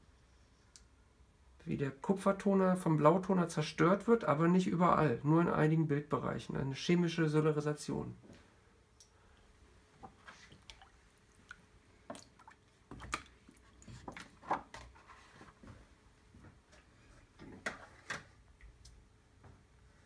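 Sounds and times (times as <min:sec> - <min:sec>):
liquid dripping and splashing: 0:10.0 - 0:14.4.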